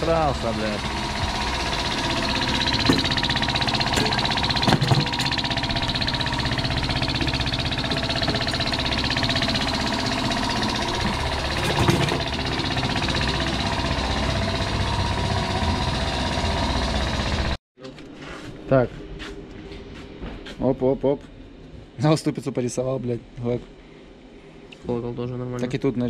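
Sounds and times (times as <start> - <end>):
engine running steadily: 0.0 - 17.6.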